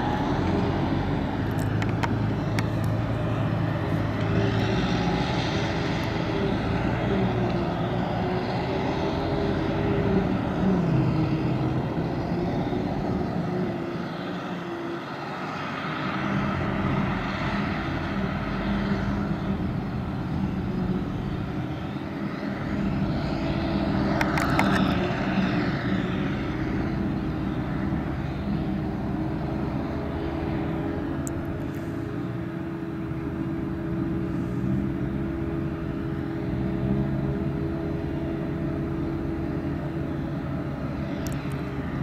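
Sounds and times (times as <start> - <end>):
forage harvester engine drone: 0.0 - 42.0
tractor running: 0.0 - 42.0
cluster of clicks: 24.2 - 24.9.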